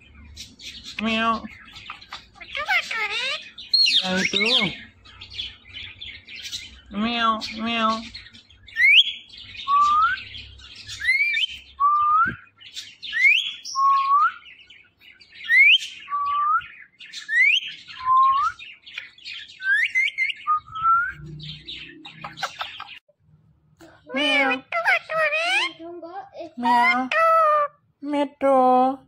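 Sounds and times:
parrot chattering: 0.9s - 4.9s, 22.1s - 23.0s, 24.1s - 25.8s.

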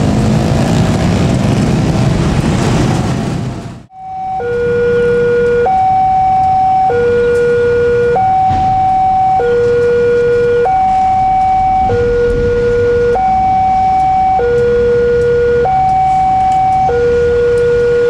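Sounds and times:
level crossing two-tone alarm: 3.9s - 18.0s.

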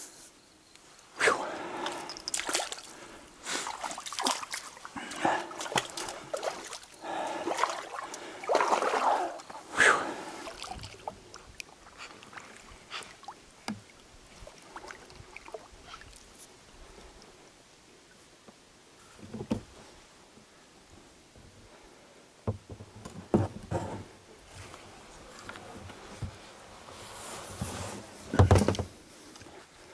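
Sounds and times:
faint ticks: 0.6s - 1.0s
shallow water splashing: 1.6s - 16.4s
scrapes and knocks: 22.7s - 24.7s.

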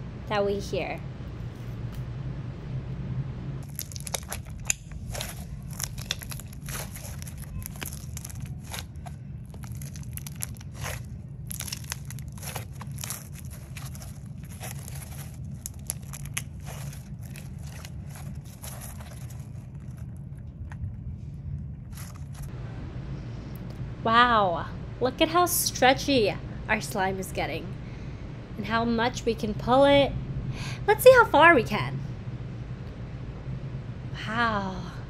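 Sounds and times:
steady low hum: 0.0s - 35.0s
slime squelching and popping: 3.6s - 19.5s.

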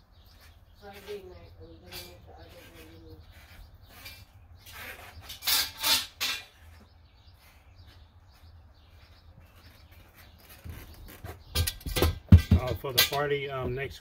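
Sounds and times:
rustling and scraping handling: 0.0s - 14.0s.

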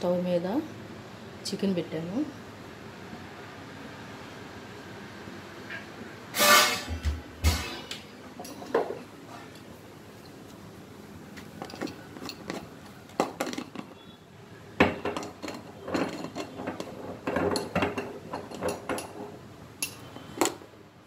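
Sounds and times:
metal pot knocking and clinking: 14.8s - 20.1s.

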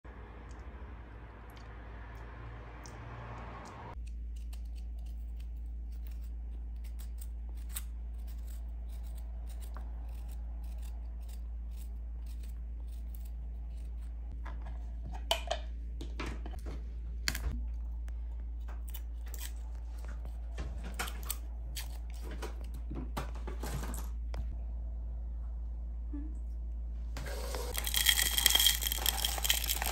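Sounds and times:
steady low hum: 0.0s - 29.9s
spoon scraping ginger peel: 4.0s - 14.2s, 27.7s - 29.9s.

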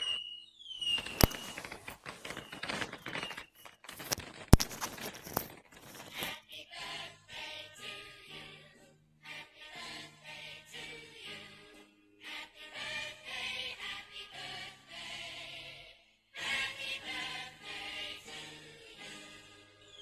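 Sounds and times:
falling firework whistle: 0.0s - 1.6s
music: 6.2s - 20.0s.

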